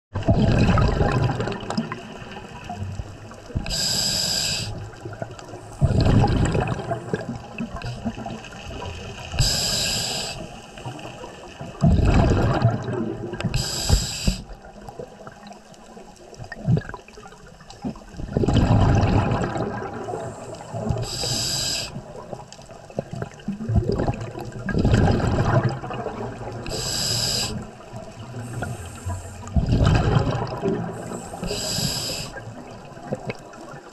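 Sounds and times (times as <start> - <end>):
gurgle of exhaled bubbles: 0.2 - 33.9
regulator inhale hiss: 3.6 - 4.9, 9.3 - 10.9, 13.5 - 14.6, 20.2 - 22.1, 26.7 - 27.7, 28.4 - 29.6, 31.0 - 32.4.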